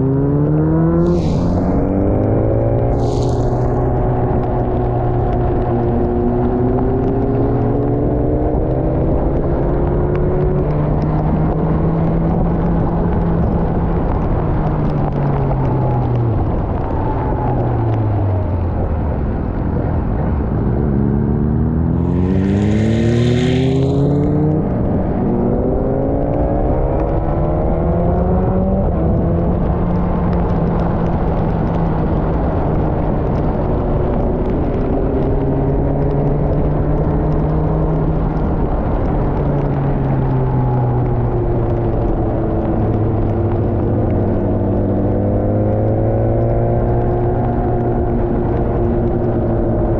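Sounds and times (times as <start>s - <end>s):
motorcycle engine accelerating: 0.0s - 49.9s
wind rushing: 0.4s - 9.9s, 11.6s - 37.6s
hiss with falling tone: 1.0s - 4.8s.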